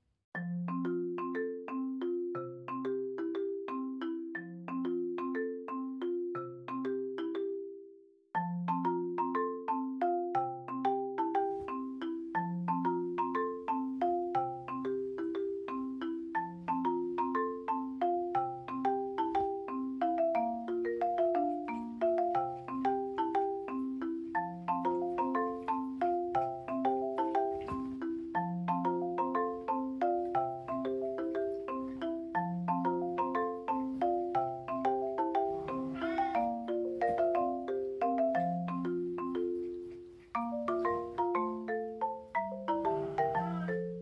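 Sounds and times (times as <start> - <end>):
marimba-like mallet melody: 0.3 - 44.0.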